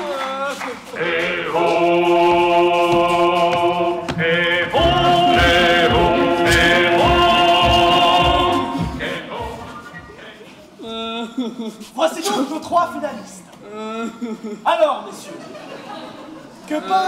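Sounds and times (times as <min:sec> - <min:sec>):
choir singing sustained chords: 0:01.0 - 0:10.1.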